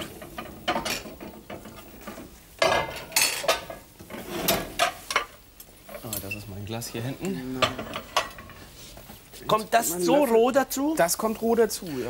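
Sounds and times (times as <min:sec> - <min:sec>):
dishes and utensils clinking: 0:00.0 - 0:06.4, 0:07.2 - 0:08.7.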